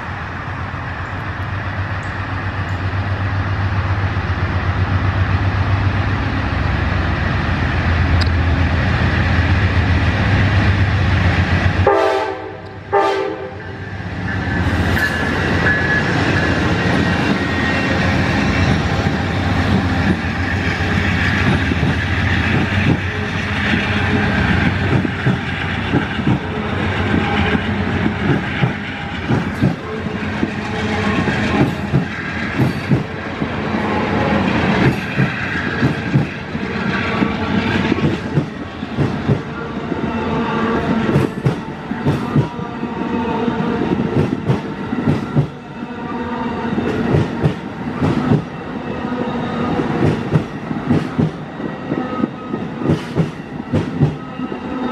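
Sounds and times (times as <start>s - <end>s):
train horn notes: 11.8s - 13.8s, 22.8s - 24.7s, 26.2s - 28.0s, 29.6s - 31.9s
locomotive engine rumble: 13.7s - 45.7s
train wheels clicking over rail joints: 14.6s - 39.5s, 49.9s - 51.4s, 52.6s - 54.2s.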